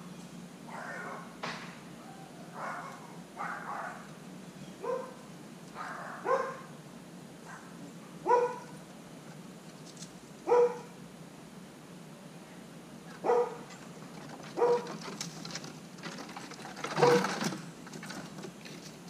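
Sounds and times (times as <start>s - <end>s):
dog barking: 0.7s - 1.4s, 2.5s - 4.1s, 4.8s - 6.7s, 7.4s - 8.8s, 10.4s - 11.0s, 13.2s - 13.7s, 14.6s - 14.9s, 17.0s - 17.3s.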